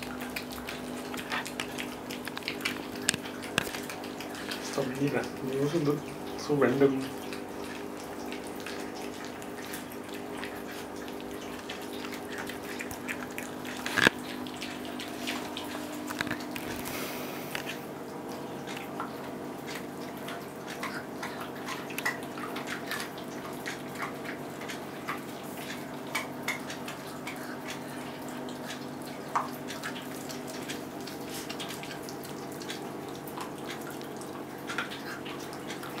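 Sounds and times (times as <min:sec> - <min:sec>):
teeth crunching on bone: 0:00.0 - 0:04.8, 0:07.2 - 0:17.8, 0:18.6 - 0:28.0.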